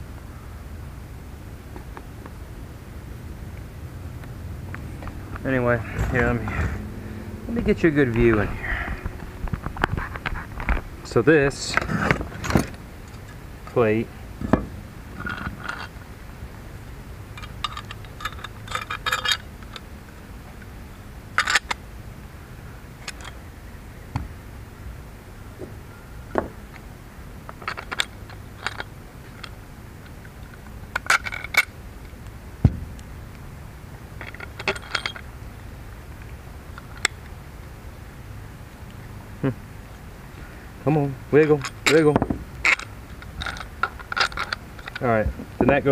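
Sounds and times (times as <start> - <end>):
metal hardware clinking: 5.6 - 6.8, 17.4 - 19.9, 21.4 - 21.8, 34.2 - 35.3, 41.4 - 45.1.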